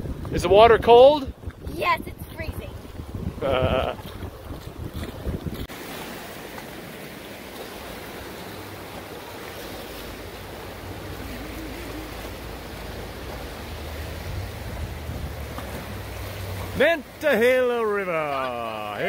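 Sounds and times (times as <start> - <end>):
wind rumble on microphone: 0.0 - 5.7, 10.1 - 16.8
river water rushing over rapids: 5.7 - 19.0.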